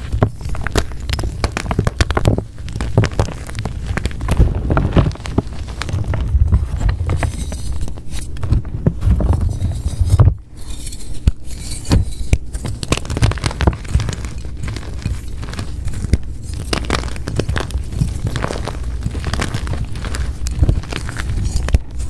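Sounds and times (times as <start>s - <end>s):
chalk crunching and crackling: 0.0s - 22.0s
soft low thumps: 2.3s - 7.2s.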